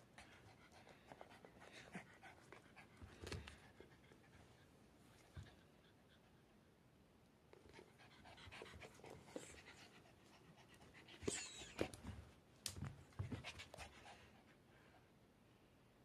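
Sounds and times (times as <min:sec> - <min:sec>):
dog panting: 0:00.0 - 0:06.4, 0:07.6 - 0:11.9.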